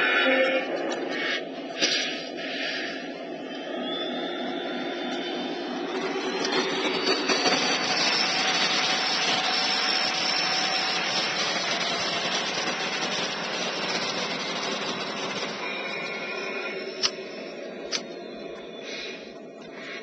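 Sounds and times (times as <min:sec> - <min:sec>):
model train running on track: 0:04.7 - 0:18.0.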